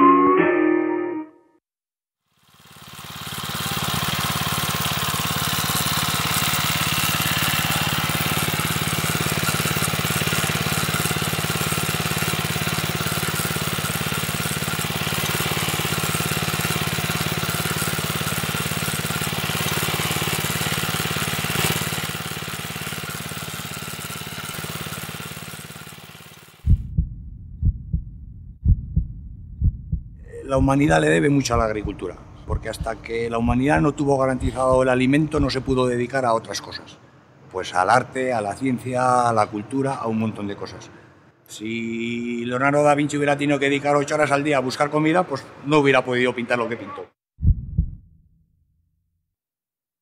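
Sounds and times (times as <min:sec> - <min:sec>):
rotary tiller engine running: 0:02.4 - 0:26.8, 0:30.4 - 0:35.9
low thumps: 0:26.6 - 0:35.9, 0:47.4 - 0:48.3.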